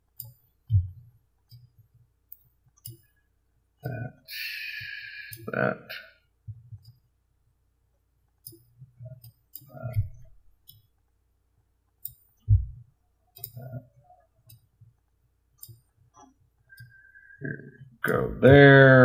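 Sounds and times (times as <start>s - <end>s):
computer mouse clicking: 0.1s - 3.2s, 6.7s - 7.0s, 8.3s - 11.2s, 11.9s - 17.0s.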